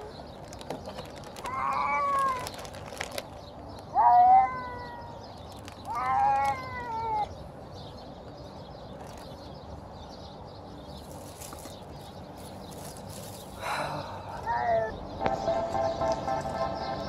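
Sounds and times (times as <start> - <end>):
plastic bag rustling: 0.0 - 3.5, 5.4 - 6.6, 11.0 - 13.7
cat meowing: 1.4 - 2.6, 3.9 - 7.3, 14.4 - 14.9.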